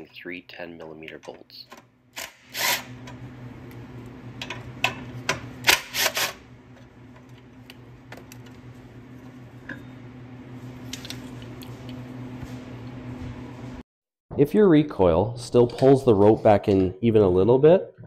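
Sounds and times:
steady low hum: 0.0s - 13.8s.

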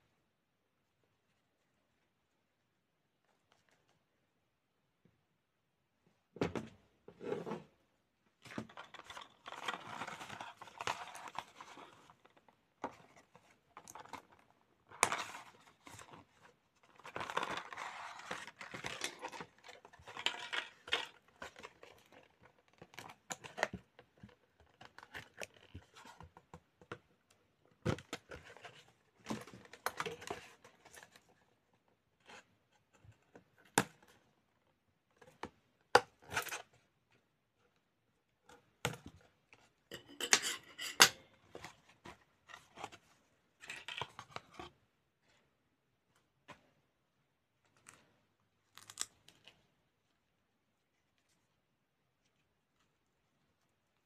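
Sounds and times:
cardboard and plastic rustling: 8.4s - 27.0s.

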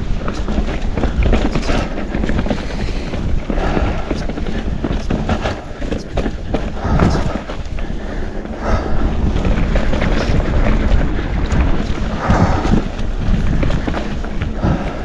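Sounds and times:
bike rattling over bumps: 0.0s - 15.0s
wind buffeting microphone: 0.0s - 15.0s.

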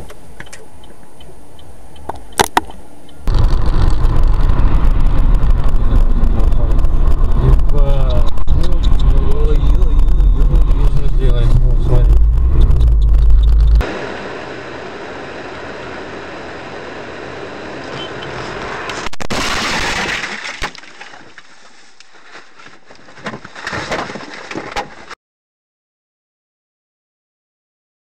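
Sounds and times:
car driving noise: 0.0s - 21.5s
low road rumble: 0.0s - 25.2s
glass breaking: 19.2s - 21.4s
knocks and rattles: 23.1s - 25.2s.

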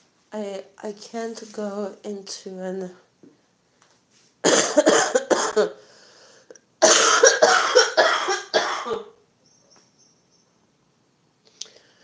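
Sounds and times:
woman coughing: 4.4s - 5.8s, 6.8s - 9.2s.

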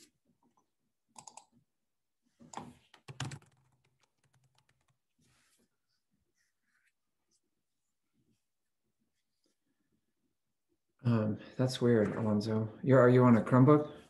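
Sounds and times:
faint keyboard typing: 1.1s - 1.6s, 2.5s - 5.3s.

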